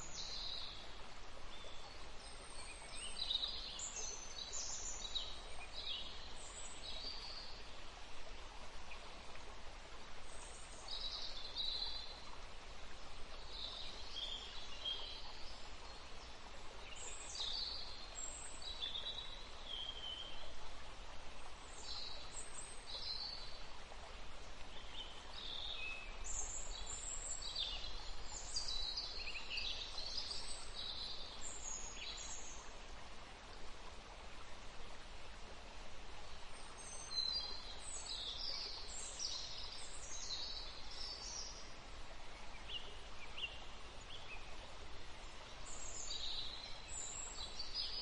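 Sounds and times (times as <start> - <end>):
songbirds chirping: 0.0 - 48.0
steady background hiss: 0.0 - 48.0.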